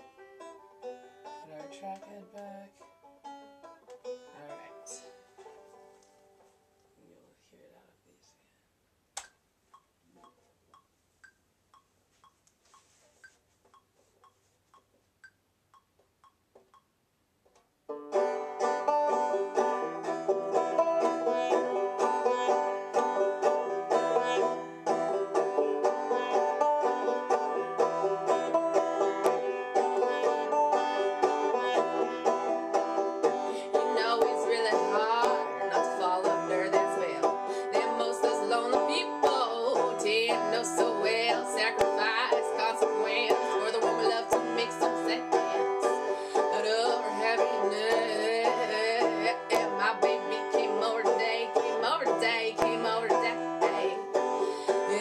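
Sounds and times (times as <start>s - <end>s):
banjo folk playing: 0.0s - 6.8s, 17.9s - 55.0s
faint even ticking: 9.2s - 17.2s
woman singing: 33.6s - 55.0s.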